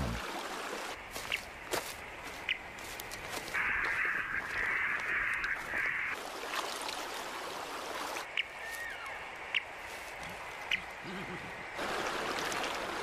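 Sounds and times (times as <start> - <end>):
radio static hiss: 3.5 - 6.2.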